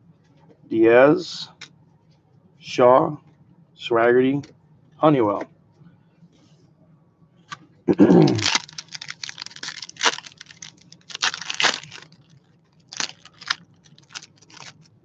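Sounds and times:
card pack wrappers tearing and crinkling: 8.2s - 14.9s.

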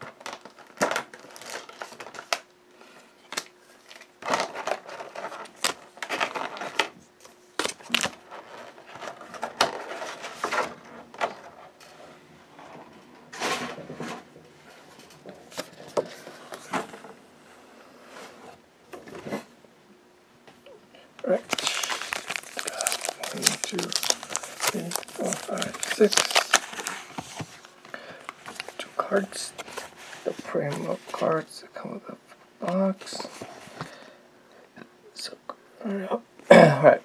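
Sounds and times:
card box packaging crinkling: 0.0s - 2.4s, 3.8s - 6.9s, 7.6s - 11.6s, 21.2s - 31.4s.

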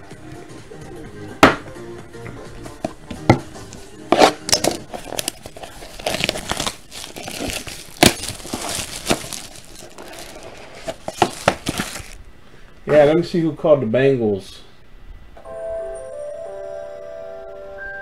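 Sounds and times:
plastic wrapping crinkling and tearing: 4.1s - 12.2s.

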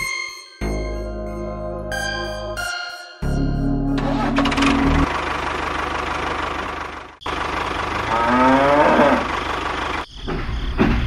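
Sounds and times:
tractor engine running: 4.0s - 10.5s
cow mooing: 8.0s - 9.4s.

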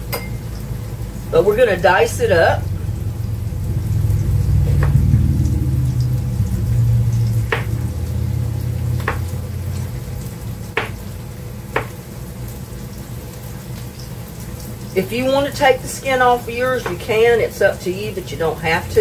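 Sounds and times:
onions sizzling faintly: 0.0s - 19.0s
low rumble: 1.2s - 11.2s
knife chopping on cutting board: 7.5s - 7.8s, 9.0s - 9.3s, 10.8s - 11.0s, 11.8s - 12.0s.

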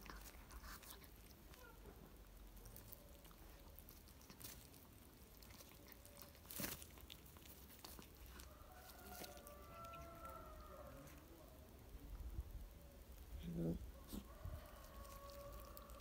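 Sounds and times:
cat chewing and crunching bones: 0.0s - 16.0s.

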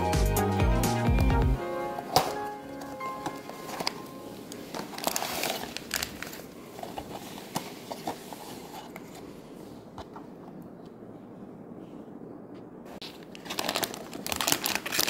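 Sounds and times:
cardboard box crinkling and clicking: 4.8s - 9.2s, 13.0s - 15.0s.

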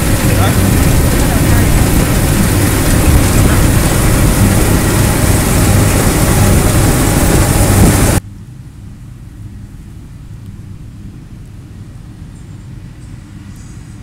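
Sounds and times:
threshing noise rush: 0.0s - 8.2s
combine harvester engine drone: 0.0s - 14.0s
distant engine rumble: 0.0s - 14.0s.

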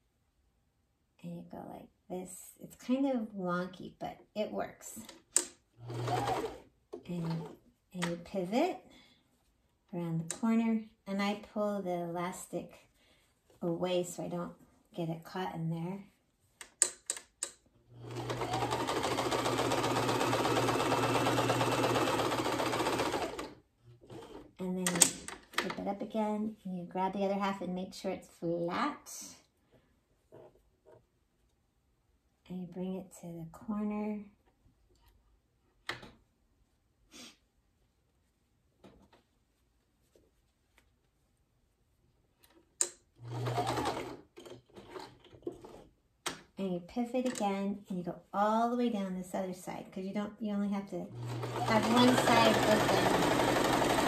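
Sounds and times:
sewing machine stitching: 5.3s - 7.6s, 18.0s - 25.3s, 43.2s - 45.9s, 51.1s - 54.0s.

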